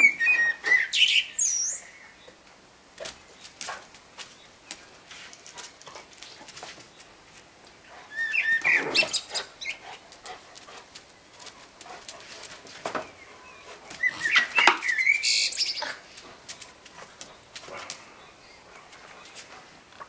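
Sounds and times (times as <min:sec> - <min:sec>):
dog whining and yipping: 0:08.1 - 0:09.8, 0:14.0 - 0:15.3.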